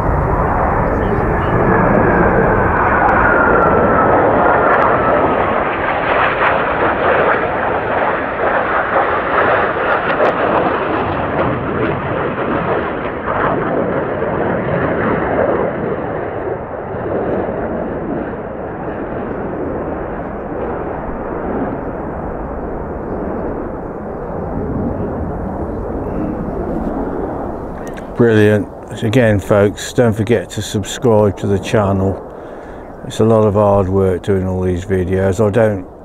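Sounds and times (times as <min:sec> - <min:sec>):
jet engines roaring overhead: 0:00.0 - 0:36.0
jet whine dropping in pitch: 0:00.0 - 0:36.0.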